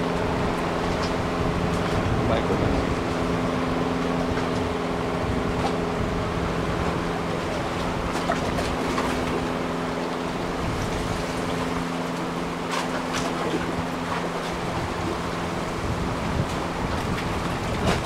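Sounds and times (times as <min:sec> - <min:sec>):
boat engine droning: 0:00.0 - 0:18.0
moving water: 0:00.0 - 0:18.0.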